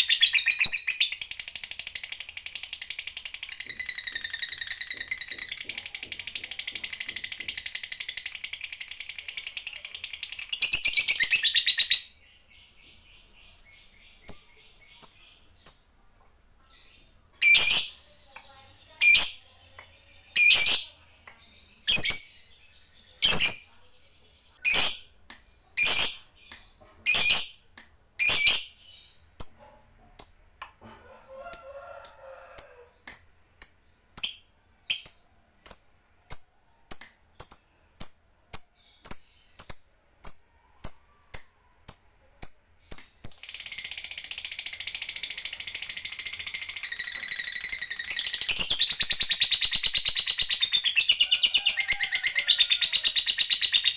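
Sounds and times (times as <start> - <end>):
lovebird shrill chirps: 0.0 - 6.0, 16.8 - 18.1, 24.6 - 25.1, 25.8 - 26.4, 28.2 - 29.6
lovebird chattering trill: 0.0 - 12.1, 25.8 - 26.3.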